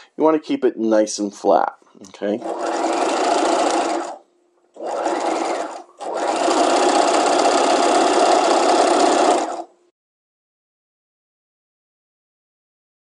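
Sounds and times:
sewing machine stitching: 2.4s - 4.2s, 4.8s - 9.7s.

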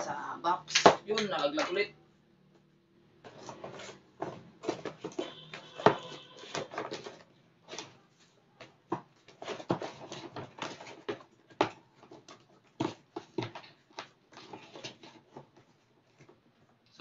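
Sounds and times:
cardboard box rustling and scraping: 3.3s - 8.0s, 9.2s - 11.3s, 14.3s - 15.8s.

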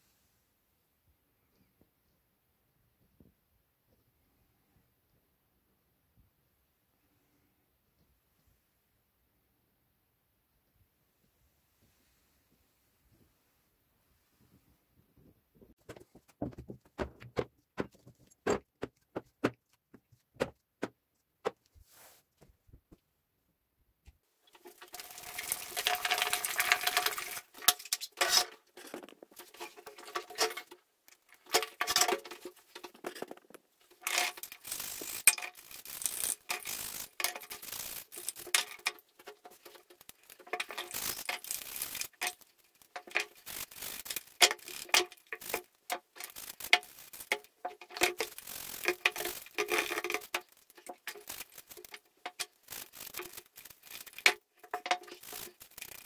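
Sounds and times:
metal parts knocking plastic tub: 15.8s - 19.6s, 24.6s - 43.5s, 44.2s - 53.4s, 54.0s - 56.0s
bristle brush scrubbing metal parts: 24.5s - 56.0s.

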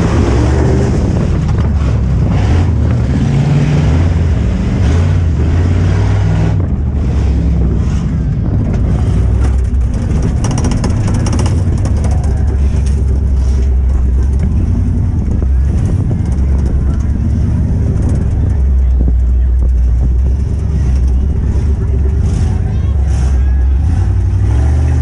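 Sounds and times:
truck engine revving: 0.0s - 25.0s
rapid clattering: 8.6s - 24.4s.

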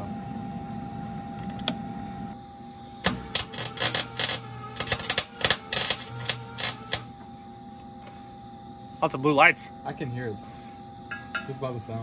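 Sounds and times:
welder arc crackling: 3.0s - 7.2s.

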